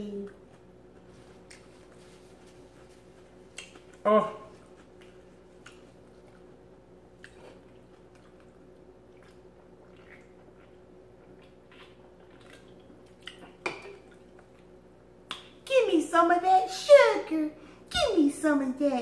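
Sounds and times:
sipping and swallowing: 0:07.2 - 0:14.7.

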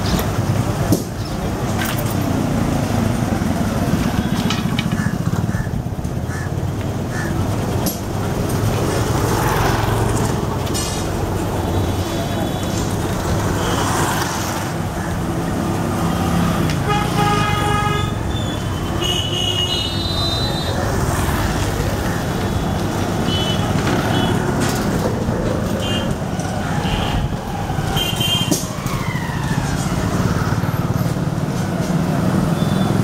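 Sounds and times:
traffic engines droning: 0:00.0 - 0:33.0
vehicle horns honking: 0:16.8 - 0:20.8, 0:22.5 - 0:24.6.

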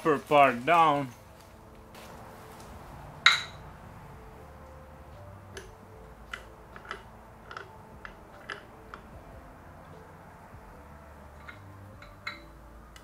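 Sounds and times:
metallic clank: 0:03.2 - 0:03.6, 0:11.3 - 0:13.0.

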